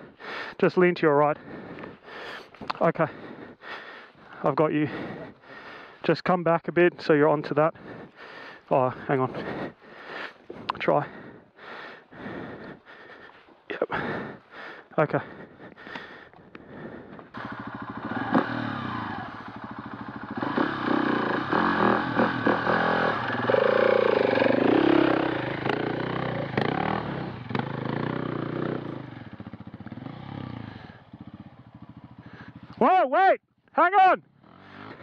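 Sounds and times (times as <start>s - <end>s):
dirt bike engine revving: 15.1s - 32.8s, 34.3s - 35.0s.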